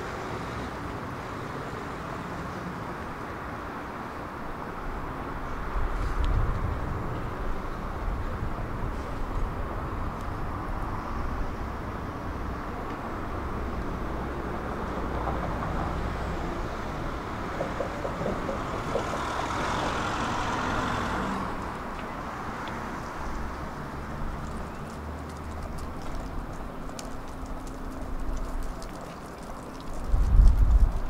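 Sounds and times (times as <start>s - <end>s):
tram wheels rumbling: 5.9s - 28.1s.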